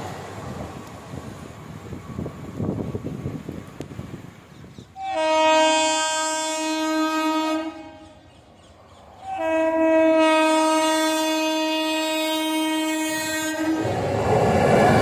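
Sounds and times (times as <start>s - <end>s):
train horn blasts: 5.0s - 8.2s, 9.2s - 13.9s.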